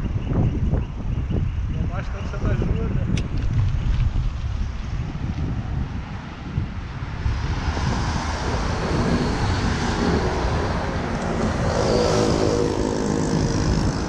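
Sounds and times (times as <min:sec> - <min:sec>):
wind rumbling on microphone: 0:00.0 - 0:14.0
road traffic passing: 0:03.7 - 0:14.0
vehicle engine: 0:06.9 - 0:14.0.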